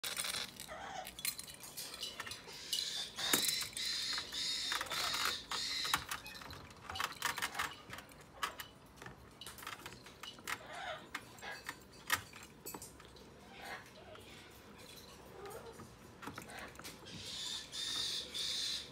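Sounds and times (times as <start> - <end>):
parrot chicks begging calls: 2.3 - 6.5, 16.4 - 18.9.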